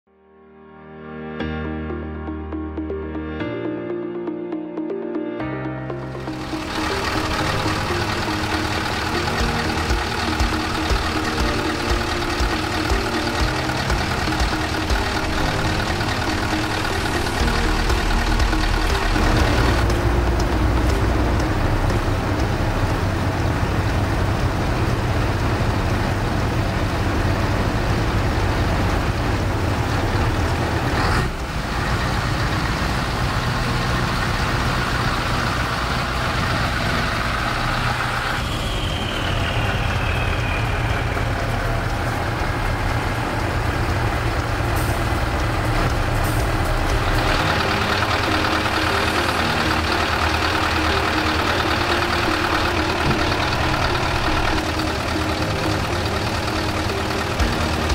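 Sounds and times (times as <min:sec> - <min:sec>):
diesel truck engine rumbling: 0:05.0 - 0:57.9
faint falling whistle: 0:38.3 - 0:41.9.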